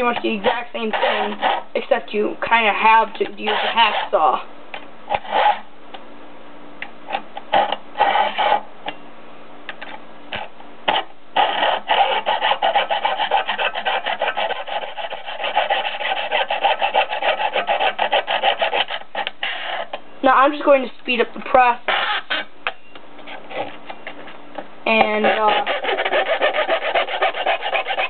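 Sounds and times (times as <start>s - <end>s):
hand tool rasping on metal: 0.0s - 1.9s, 2.9s - 4.3s, 11.4s - 20.0s, 21.9s - 22.5s, 24.9s - 28.0s.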